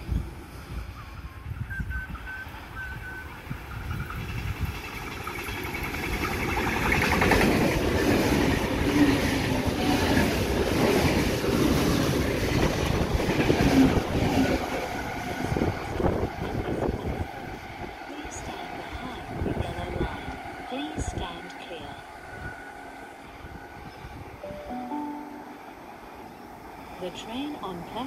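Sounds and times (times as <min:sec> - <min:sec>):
electric train running: 0:00.0 - 0:24.5
wheels clattering over rail joints: 0:03.9 - 0:14.8.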